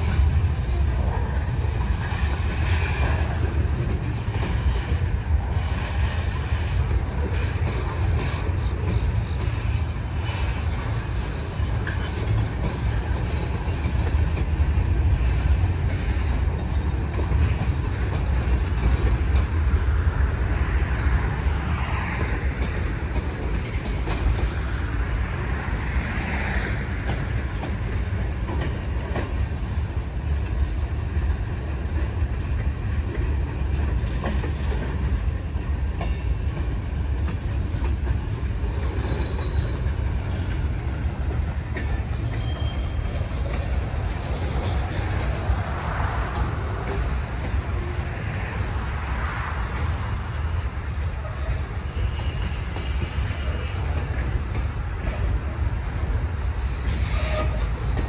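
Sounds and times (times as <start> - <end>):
train wheels rumbling on rail: 0.0 - 58.0
high wheel squeal: 28.4 - 34.2, 34.9 - 45.1, 50.3 - 54.4, 55.1 - 58.0.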